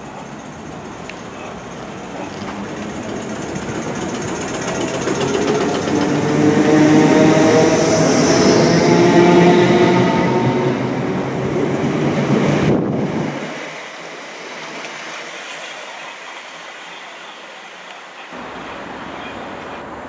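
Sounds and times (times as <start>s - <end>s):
train motors whining: 0.0s - 12.9s
train wheels rumbling: 0.0s - 15.4s.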